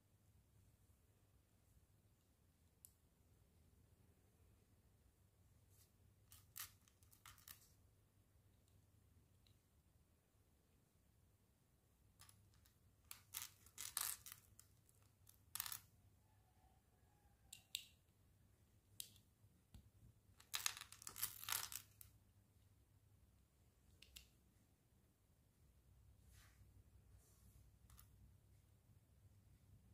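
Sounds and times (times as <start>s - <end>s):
plastic bricks clicking: 12.2s - 14.7s.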